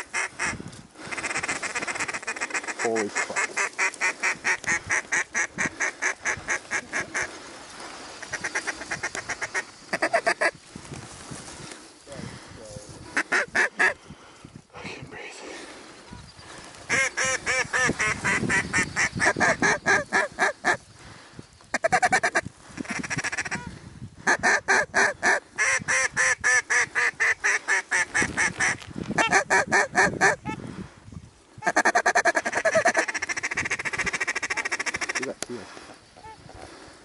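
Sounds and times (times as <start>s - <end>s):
duck quacking: 0.0s - 7.4s, 16.9s - 20.8s, 31.6s - 35.3s.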